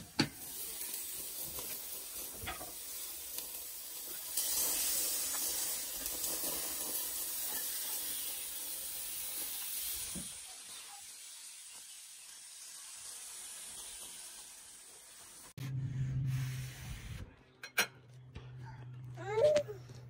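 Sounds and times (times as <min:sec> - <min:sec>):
meat sizzling on a grill: 0:00.0 - 0:15.6.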